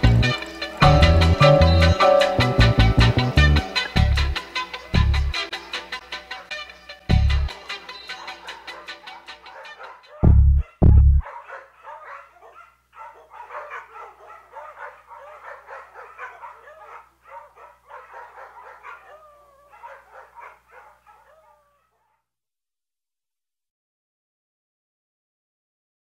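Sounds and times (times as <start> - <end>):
dogs barking and yelping: 6.1 - 6.8, 7.5 - 22.2
dog whining: 8.1 - 22.2.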